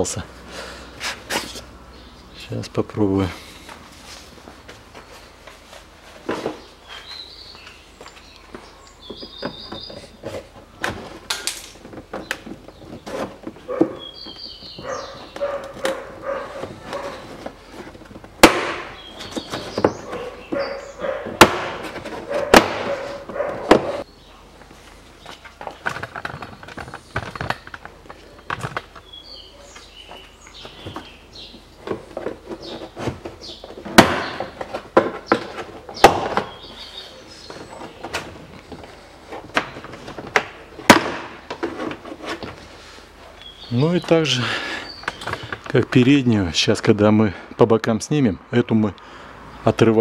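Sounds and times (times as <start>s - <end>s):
plastic rubbing and rattling: 9.2s - 18.4s, 25.3s - 29.1s, 31.8s - 42.8s.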